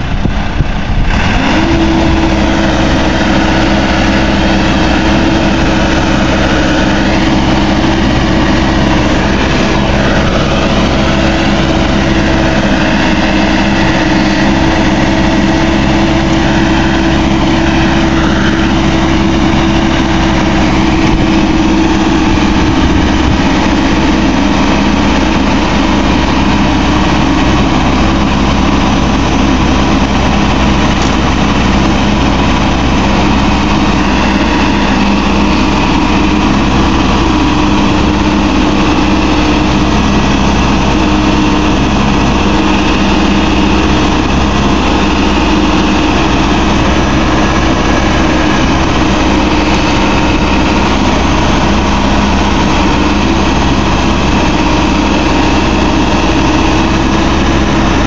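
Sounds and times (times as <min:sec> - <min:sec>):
diesel engine running loudly: 0:00.0 - 0:58.0.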